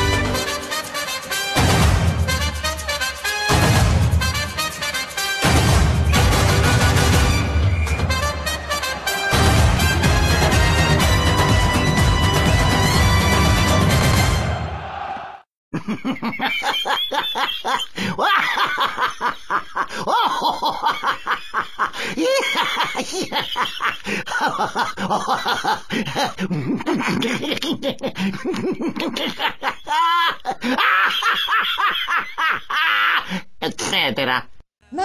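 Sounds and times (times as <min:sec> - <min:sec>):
person laughing: 0:15.7 - 0:34.0.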